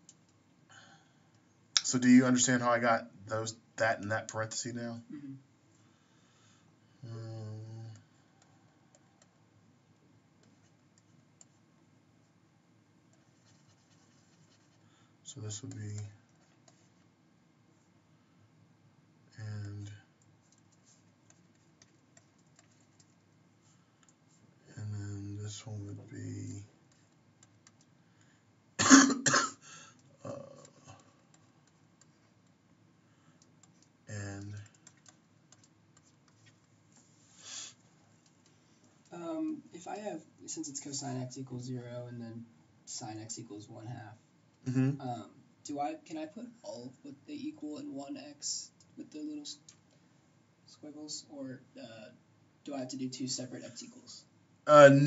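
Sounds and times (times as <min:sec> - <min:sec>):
person coughing: 0:28.8 - 0:29.7
person humming: 0:44.7 - 0:45.0.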